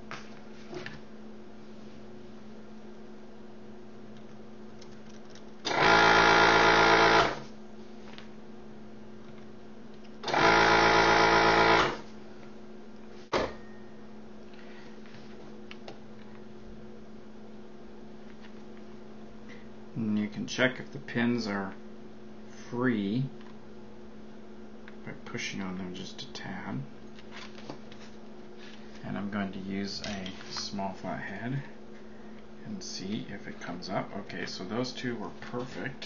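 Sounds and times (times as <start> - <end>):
faint steady hum: 0.0 - 36.0
desoldering pump buzzing: 4.1 - 7.8, 9.1 - 13.1.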